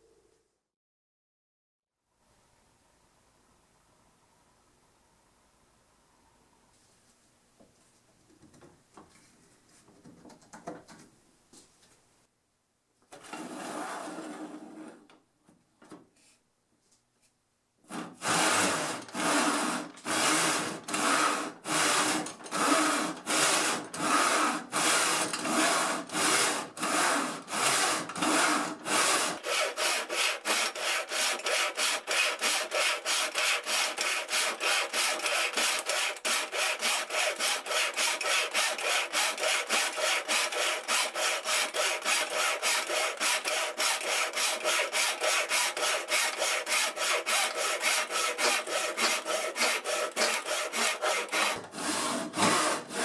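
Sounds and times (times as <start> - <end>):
saw cutting wooden block: 17.9 - 53.0.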